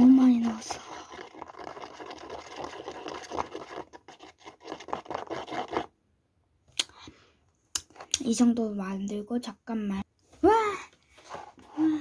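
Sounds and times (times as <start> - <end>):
fingertip rubbing plastic mould: 0.3 - 5.9.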